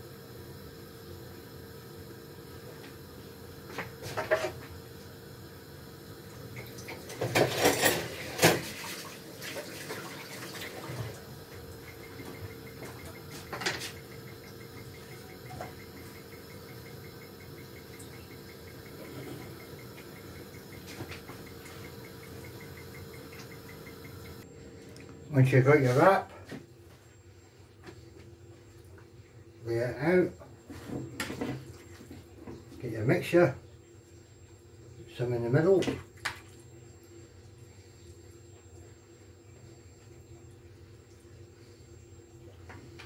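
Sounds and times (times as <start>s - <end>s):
gas burner hissing: 0.0s - 24.5s.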